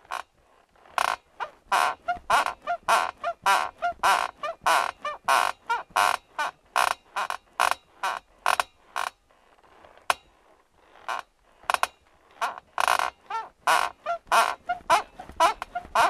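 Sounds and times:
metal bed frame squeaking: 0.1 - 16.0.

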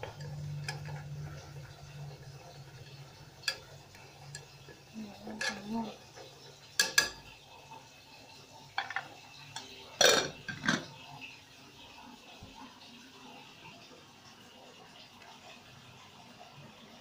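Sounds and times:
chopsticks stirring in metal pot: 2.7 - 7.3
chopsticks clinking against pot: 6.8 - 7.2.

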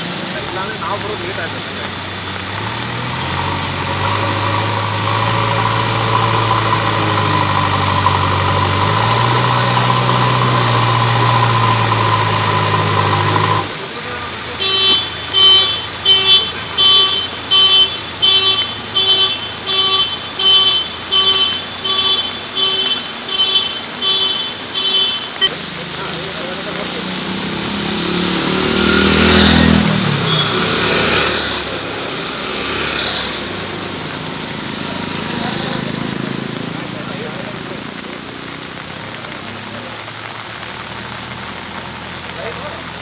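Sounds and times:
diesel engine revving: 0.0 - 14.6, 25.3 - 43.0.

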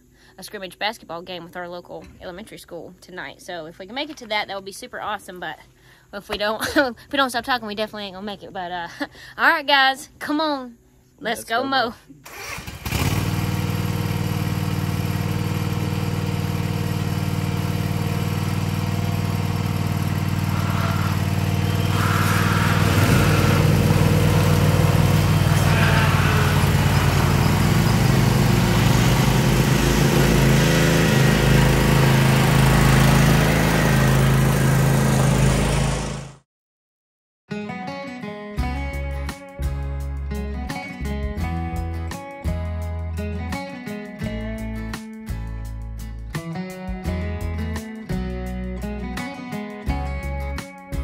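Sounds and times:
mower engines running: 12.2 - 36.4.

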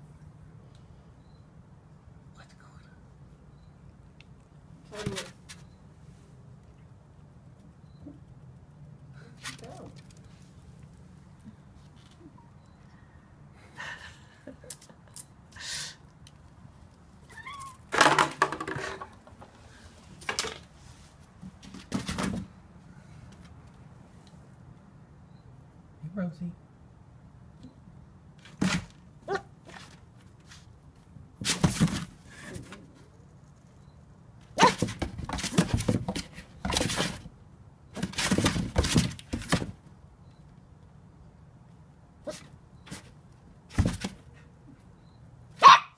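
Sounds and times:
cat yowling: 17.3 - 17.8.

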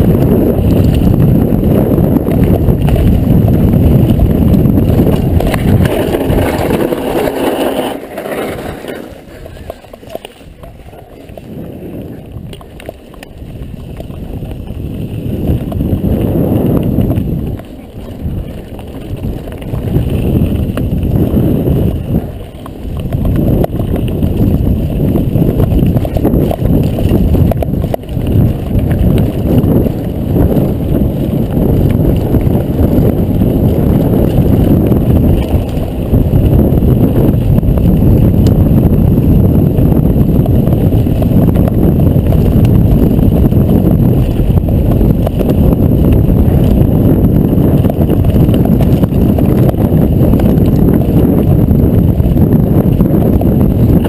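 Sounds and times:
bike rattling: 0.0 - 54.0
wind buffeting microphone: 0.0 - 54.0
tyres crunching over stones: 2.3 - 36.4.

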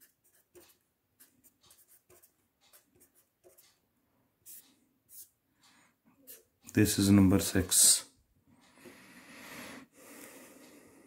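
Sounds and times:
pen scratching on paper: 0.0 - 3.8, 4.4 - 5.4, 6.2 - 6.6.

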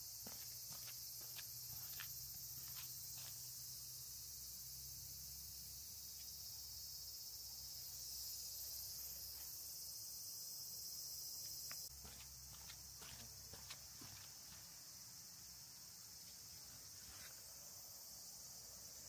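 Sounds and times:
insects chirring: 0.0 - 19.0
footsteps on path: 0.1 - 3.5, 11.5 - 14.8.

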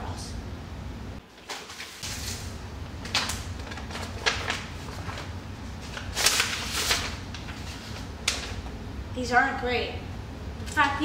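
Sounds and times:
paper envelope rustling: 1.3 - 8.7.

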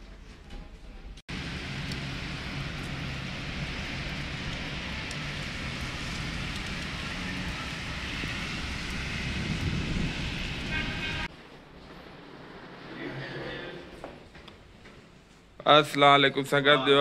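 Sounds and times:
heavy rain: 1.3 - 11.3
wind rumble on microphone: 1.3 - 11.3
street traffic: 1.3 - 15.2.

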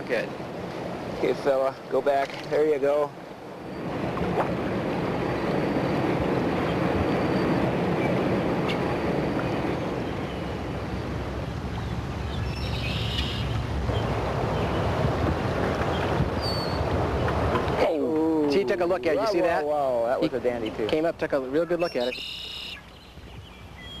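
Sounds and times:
rushing river water: 0.0 - 24.0
wind on microphone: 3.3 - 19.7, 22.8 - 24.0.

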